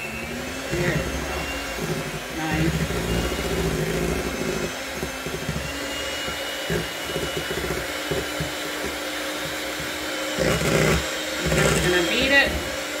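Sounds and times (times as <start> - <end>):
electric hand mixer whirring: 0.0 - 13.0.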